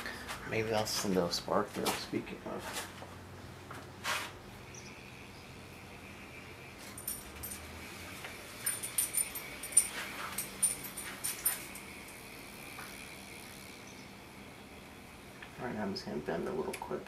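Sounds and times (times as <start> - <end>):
faint high whine: 4.4 - 17.0.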